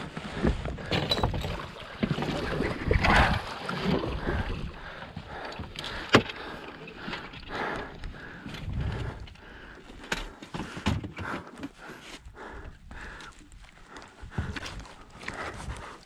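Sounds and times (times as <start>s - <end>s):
water lapping against boat hull: 0.0s - 9.9s.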